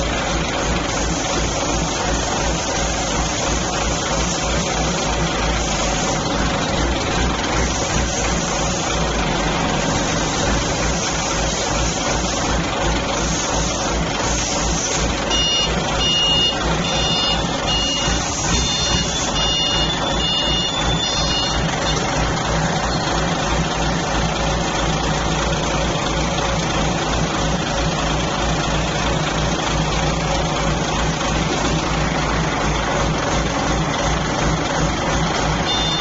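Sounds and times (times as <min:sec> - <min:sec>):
forklift engine running: 0:00.0 - 0:36.0
forklift warning alarm beeping: 0:15.2 - 0:23.2, 0:35.6 - 0:36.0.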